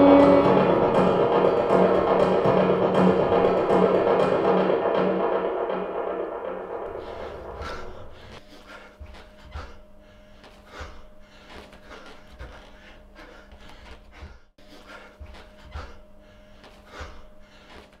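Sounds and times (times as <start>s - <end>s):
steady low hum: 0.0s - 18.0s
person breathing heavily: 7.0s - 18.0s.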